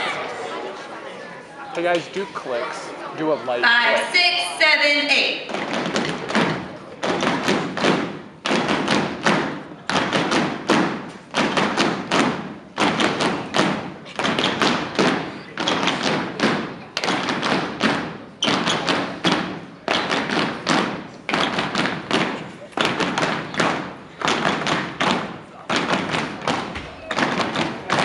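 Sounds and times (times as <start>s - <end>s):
body percussion thumps: 5.5s - 28.0s
rhythmic hand claps: 5.5s - 28.0s.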